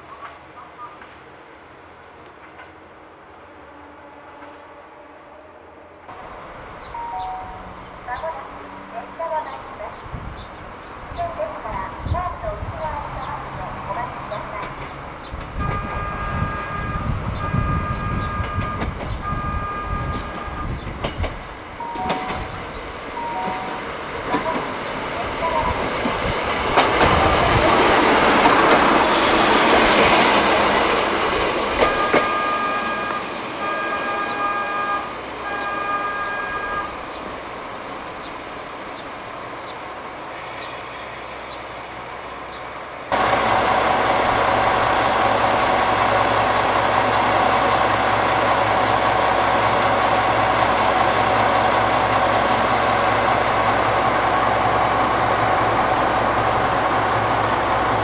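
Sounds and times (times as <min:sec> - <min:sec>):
diesel engine hum: 0:43.1 - 0:58.0.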